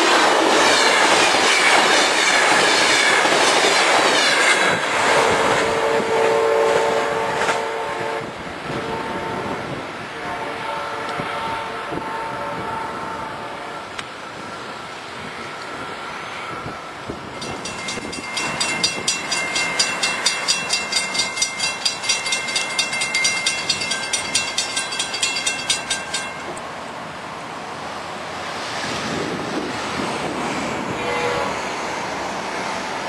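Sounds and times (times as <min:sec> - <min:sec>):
road traffic: 0:00.0 - 0:33.0
crossing warning bell ringing: 0:17.3 - 0:26.7.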